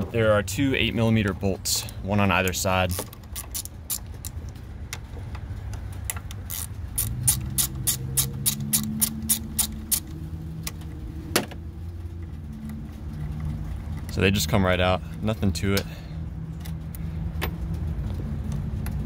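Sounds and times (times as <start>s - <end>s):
socket ratchet clicking: 2.5s - 4.5s, 6.1s - 10.8s.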